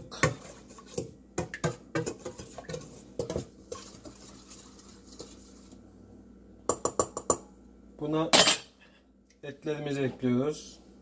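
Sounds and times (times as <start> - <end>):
metal spoon stirring in a bowl: 0.1 - 5.8.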